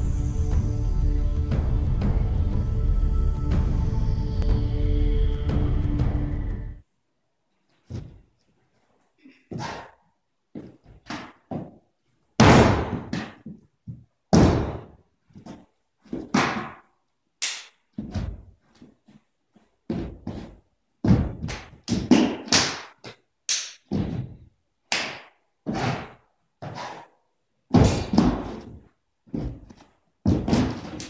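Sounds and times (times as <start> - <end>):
stamping feet and strikes: 12.4 - 13.6, 14.3 - 14.9, 16.1 - 16.9, 27.7 - 28.8, 29.4 - 31.0.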